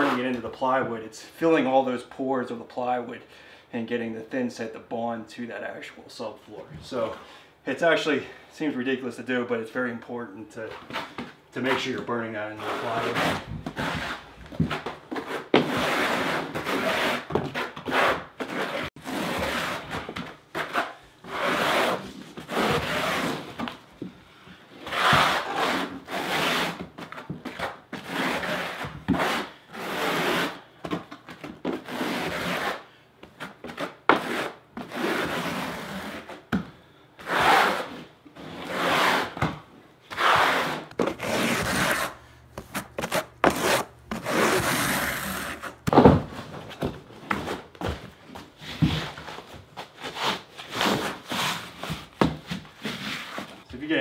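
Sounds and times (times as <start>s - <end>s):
trowel scraping mortar: 11.6s - 23.4s, 40.1s - 45.8s.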